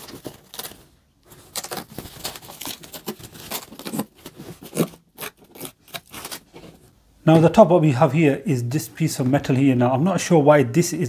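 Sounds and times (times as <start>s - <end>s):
foam sheet rustling and crinkling: 0.0s - 6.9s.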